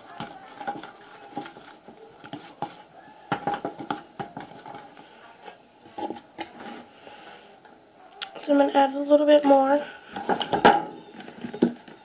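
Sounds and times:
chopstick stirring slime: 0.0s - 5.0s.

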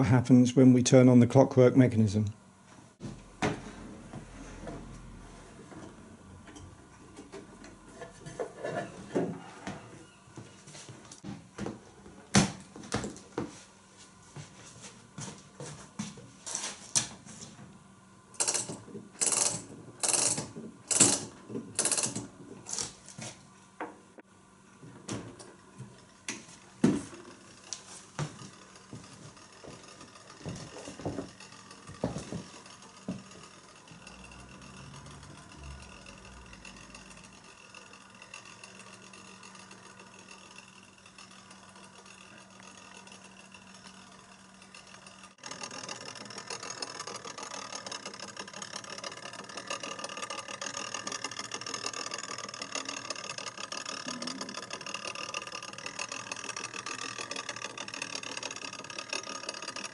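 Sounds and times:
clockwork mechanism whirring: 18.1s - 59.9s
clockwork clicking: 18.3s - 23.0s, 26.3s - 59.9s
scattered knocks: 28.2s - 34.1s.

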